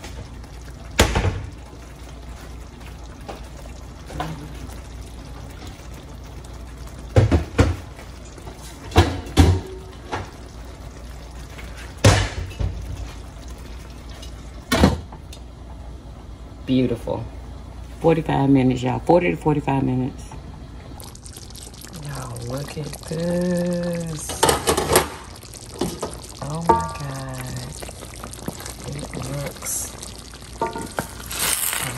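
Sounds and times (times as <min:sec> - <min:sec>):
braise bubbling in a pan: 0:00.0 - 0:17.0, 0:20.8 - 0:31.9.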